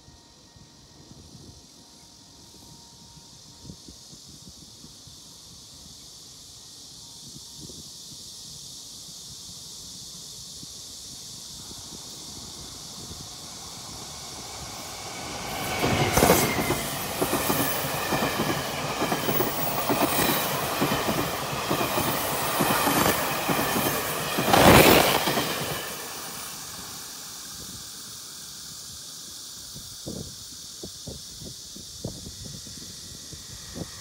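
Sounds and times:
faint high squeal: 0.0 - 4.6, 11.5 - 28.5.

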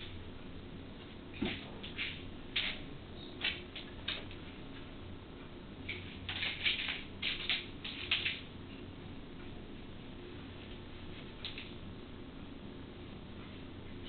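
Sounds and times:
faint steady hum: 0.0 - 14.0
kitten claws scratching floor: 1.4 - 4.4, 5.9 - 8.5.

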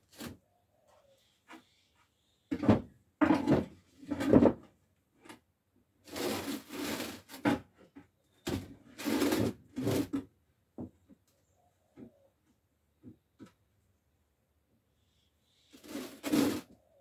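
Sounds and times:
objects knocking and scraping: 2.5 - 5.4, 6.1 - 11.1.

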